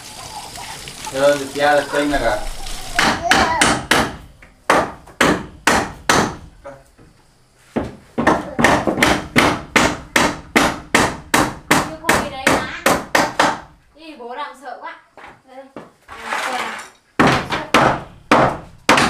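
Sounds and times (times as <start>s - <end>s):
hammer driving nails into wood: 3.0s - 6.4s, 8.2s - 13.6s, 17.2s - 19.0s.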